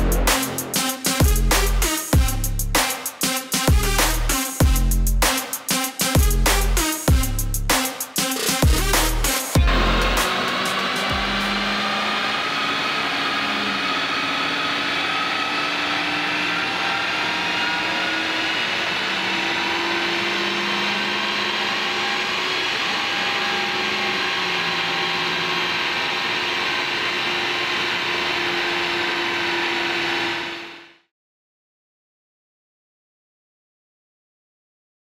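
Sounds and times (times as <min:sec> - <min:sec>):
dyno roller noise: 0:08.2 - 0:31.0
car engine under load: 0:09.6 - 0:30.8.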